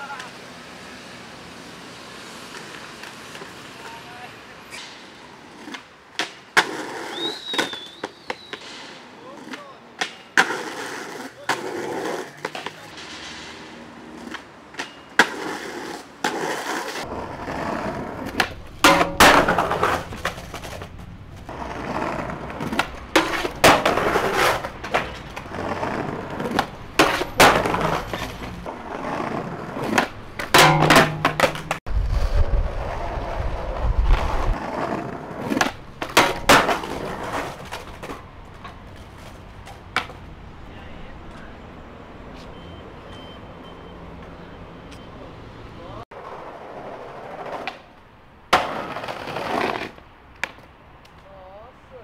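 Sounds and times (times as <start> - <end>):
skateboard wheels rolling on concrete: 0.0 - 52.0
skateboard clacking down: 9.4 - 31.8, 34.5 - 40.2, 46.2 - 50.7.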